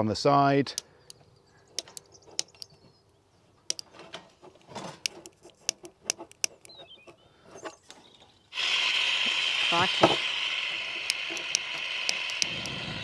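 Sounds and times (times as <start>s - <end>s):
faint bird chirping: 0.6s - 4.0s, 6.4s - 8.6s
barbecue igniter clicking: 1.8s - 2.7s, 3.7s - 3.9s, 9.2s - 13.0s.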